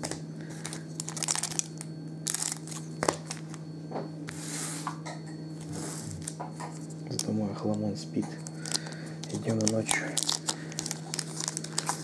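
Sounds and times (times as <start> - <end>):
foil packs rustling and tearing: 0.6 - 3.6, 8.4 - 12.0.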